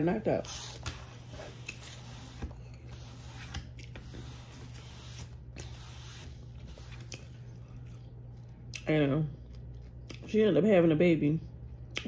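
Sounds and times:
low room hum: 0:00.0 - 0:12.0
faint chewing: 0:06.8 - 0:10.3.

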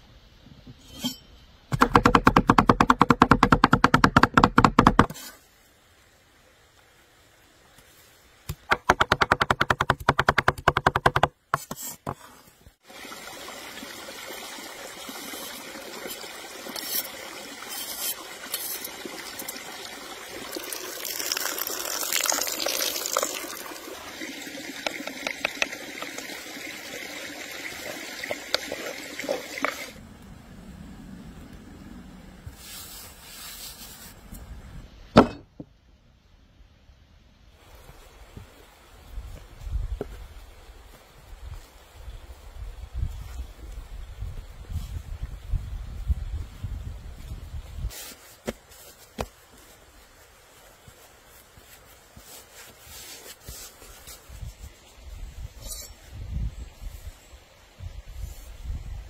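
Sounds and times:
cleavers chopping on wooden board: 0:01.8 - 0:05.1, 0:08.5 - 0:11.8
soft scraping in wooden bowl: 0:16.8 - 0:18.9.

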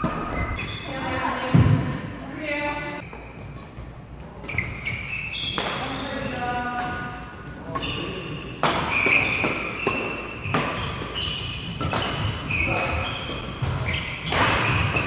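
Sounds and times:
shoe squeaks on court: 0:00.1 - 0:01.2, 0:04.4 - 0:06.2, 0:07.7 - 0:15.0
racket hitting shuttlecock: 0:04.4 - 0:15.0.

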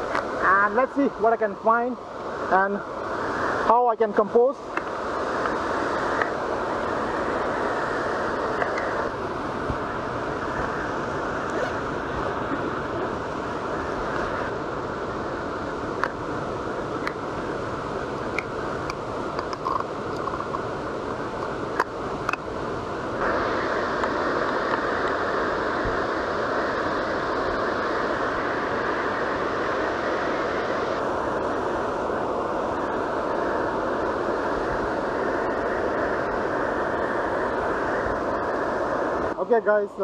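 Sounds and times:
waterfall roaring: 0:00.0 - 0:40.0.

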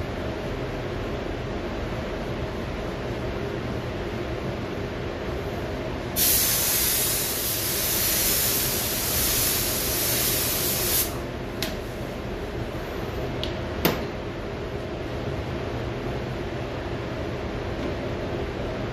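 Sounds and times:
paint spray gun hissing: 0:06.2 - 0:11.2.

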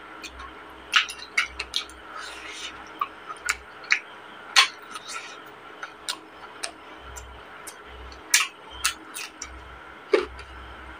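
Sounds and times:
person chewing with lip smacks: 0:00.3 - 0:04.0, 0:04.6 - 0:09.5.

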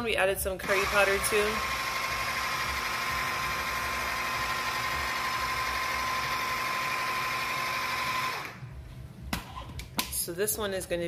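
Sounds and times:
blender motor whining: 0:00.6 - 0:08.7.

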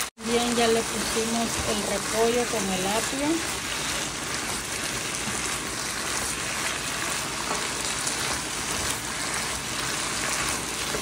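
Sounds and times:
food sizzling in a frying pan: 0:00.0 - 0:11.0
spoon stirring in a pan: 0:03.4 - 0:11.0.

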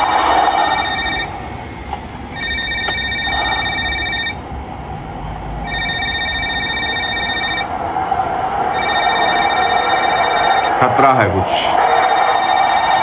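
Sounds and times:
phone ringing: 0:00.0 - 0:01.4, 0:02.3 - 0:04.4, 0:05.6 - 0:07.7, 0:08.7 - 0:13.0.

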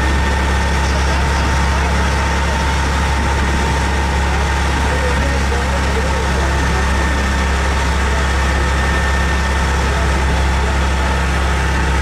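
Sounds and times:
tractor engine droning: 0:00.0 - 0:12.0.

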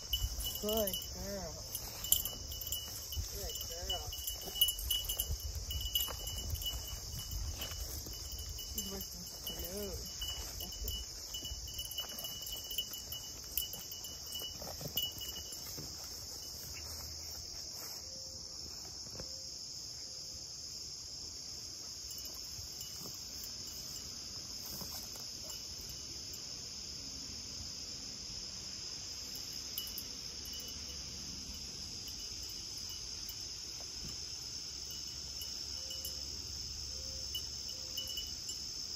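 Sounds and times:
field insects chorus: 0:00.0 - 0:38.9
footsteps through tall grass: 0:01.6 - 0:18.2.

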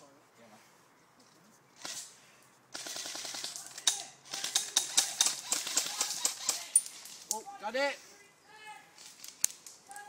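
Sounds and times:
airsoft rifles firing: 0:02.7 - 0:07.2.

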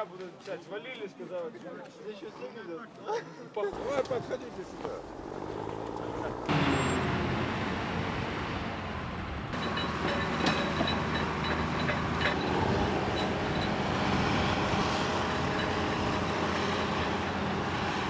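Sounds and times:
engine running: 0:03.8 - 0:18.0.

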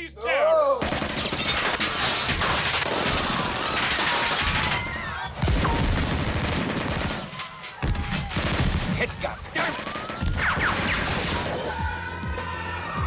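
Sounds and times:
rapid handgun fire: 0:00.8 - 0:04.8, 0:05.4 - 0:07.3, 0:08.2 - 0:11.5.

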